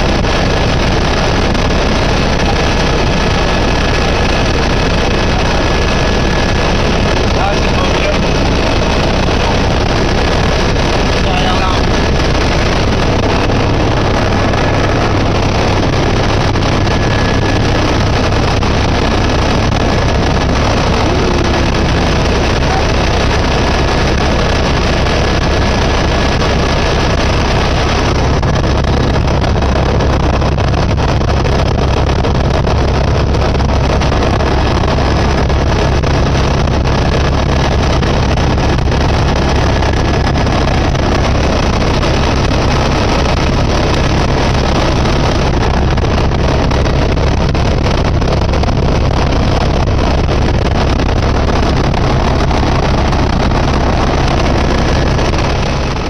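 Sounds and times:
helicopter engine and rotor drone: 0.0s - 56.0s
faint high whine: 2.0s - 25.0s.

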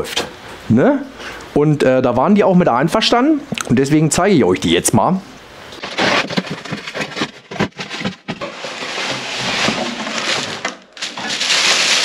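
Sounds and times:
cardboard box flaps scraping: 5.8s - 12.0s
tissue paper crinkling: 5.8s - 12.0s.

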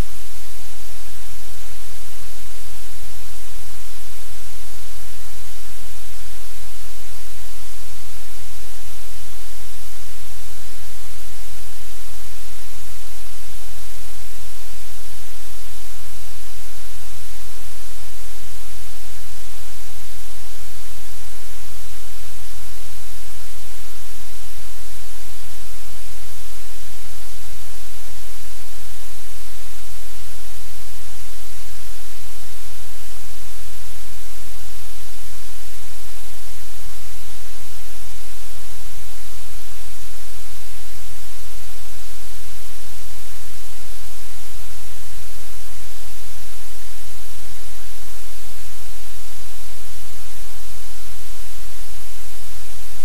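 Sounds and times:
static hiss: 0.0s - 53.0s.

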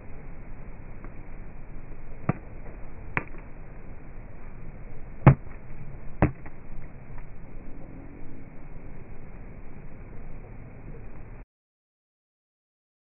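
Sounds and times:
paddle striking plastic ball: 6.2s - 6.5s.

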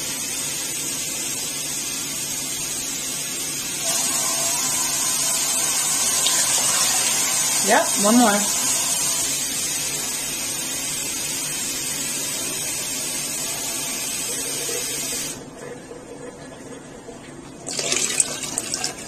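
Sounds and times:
water pouring into pot: 3.8s - 10.3s, 12.9s - 19.0s.

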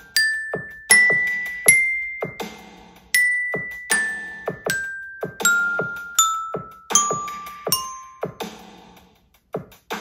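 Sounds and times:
toy xylophone notes: 0.0s - 8.6s.

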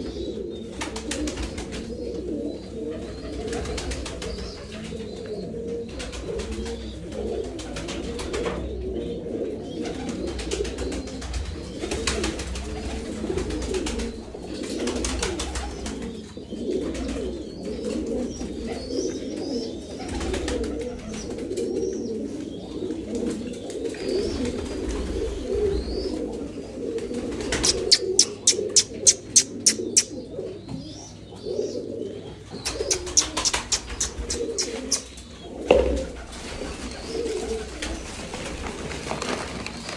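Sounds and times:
pigeons cooing: 0.0s - 39.9s
sharp claps: 32.7s - 35.1s.

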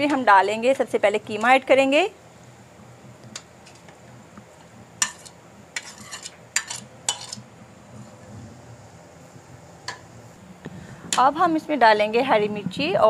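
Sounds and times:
metal spoon scraping a plate: 5.0s - 7.4s.

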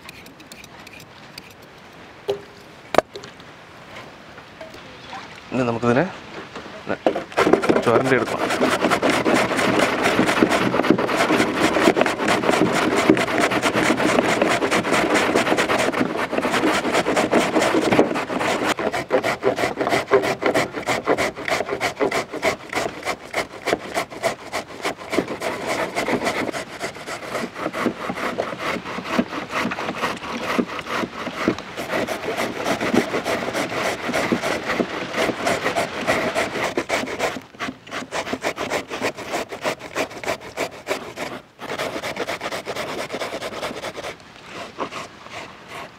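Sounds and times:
carrots grated on metal grater: 7.4s - 27.6s.

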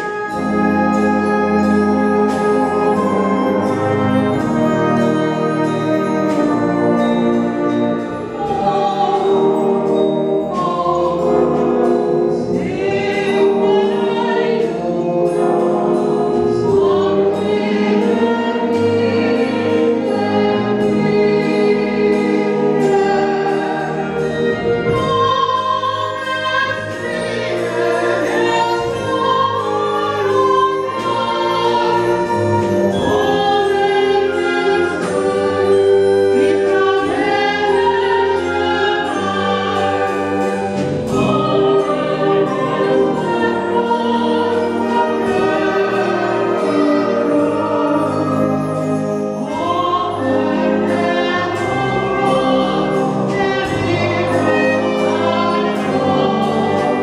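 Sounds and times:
concert band sustained chords: 0.0s - 57.0s
mixed choir singing: 0.0s - 57.0s.

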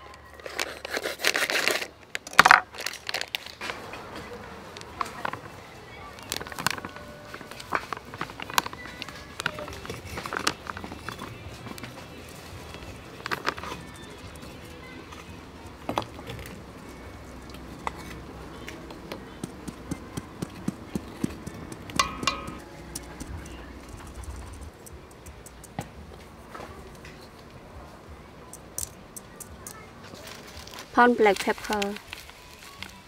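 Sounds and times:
sieve tapping: 19.1s - 24.2s
ringing knock on metal bowl: 22.0s - 22.6s.

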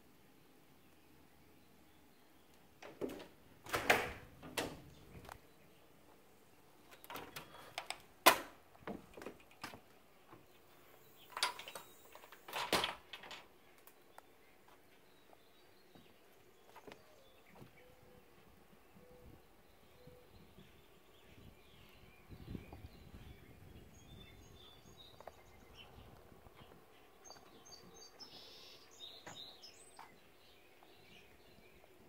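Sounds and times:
door knocks and clatters: 2.8s - 5.2s
footsteps on wooden deck: 8.6s - 11.0s, 14.6s - 17.8s, 26.2s - 28.4s, 29.1s - 31.0s.

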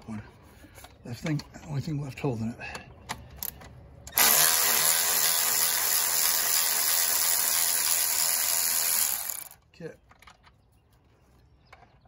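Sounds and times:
power ratchet whirring: 4.1s - 9.6s.

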